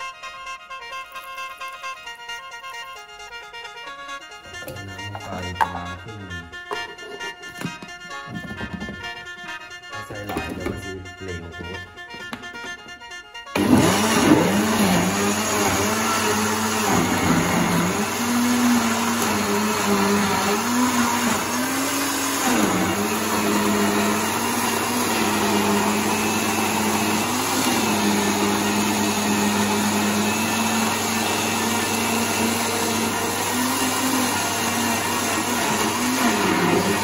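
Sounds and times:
electric blender running: 13.5 - 37.0.

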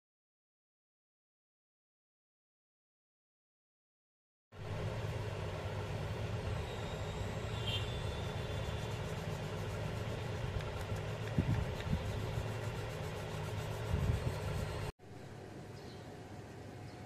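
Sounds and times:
low machine hum: 4.6 - 17.0.

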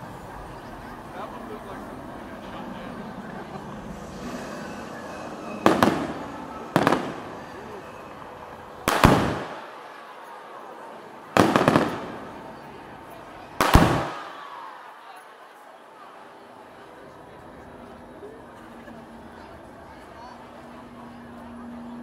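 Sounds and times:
crowd talking: 0.0 - 22.0
fireworks bangs with echo: 4.2 - 9.9, 11.3 - 12.8, 13.5 - 14.5.

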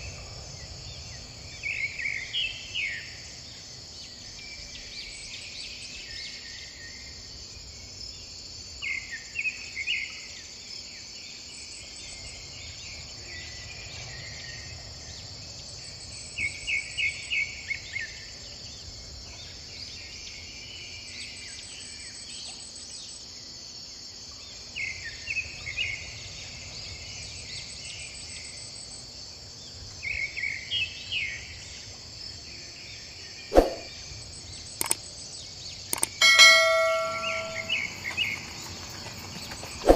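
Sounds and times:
insects droning: 0.0 - 39.9
quick repeated chirps: 33.5 - 33.9, 34.8 - 35.0, 35.9 - 38.0
sharp click: 34.8 - 35.0, 35.9 - 37.8.

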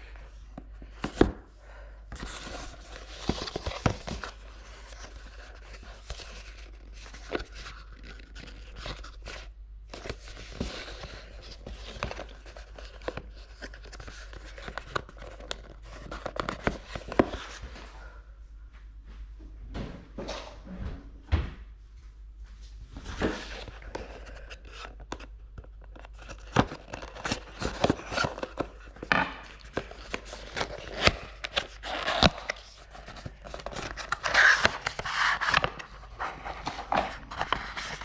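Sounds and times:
paper sleeve scraping and rustling: 26.1 - 38.0.

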